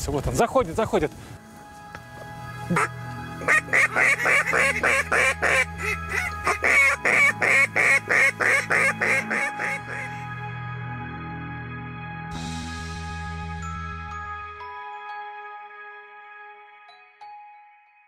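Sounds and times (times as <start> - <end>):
duck call quacks: 2.7 - 10.2.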